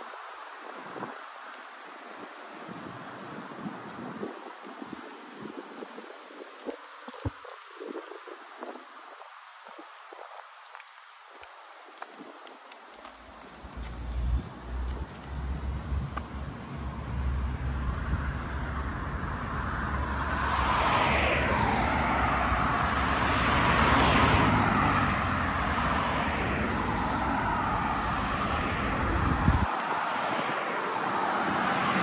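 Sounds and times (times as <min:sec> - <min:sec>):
low rumble: 0:13.6 - 0:20.2
road vehicle passing: 0:13.6 - 0:32.0.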